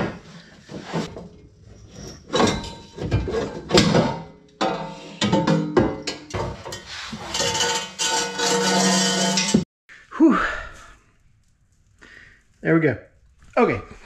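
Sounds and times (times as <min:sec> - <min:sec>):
metal clunks and scraping clatter: 0:00.0 - 0:09.6
metal tubes ringing: 0:04.6 - 0:09.6.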